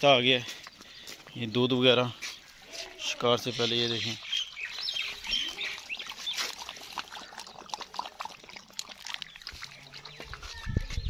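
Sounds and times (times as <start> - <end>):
dog lapping milk: 3.7 - 11.0.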